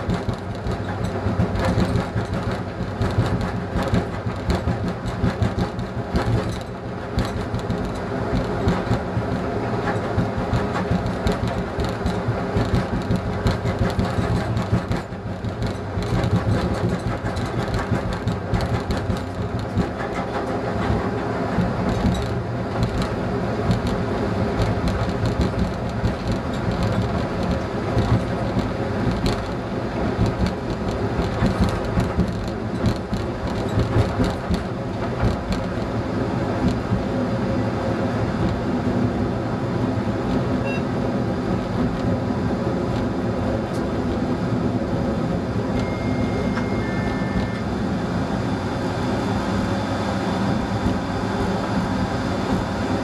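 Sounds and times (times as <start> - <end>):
track clicks: 0.0 - 35.9, 45.7 - 47.8
diesel engine drone: 0.0 - 53.0
train wheels rolling on rails: 0.0 - 53.0.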